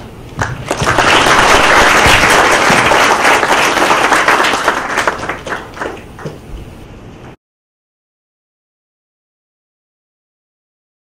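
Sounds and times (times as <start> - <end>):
crowd applauding: 0.4 - 6.4.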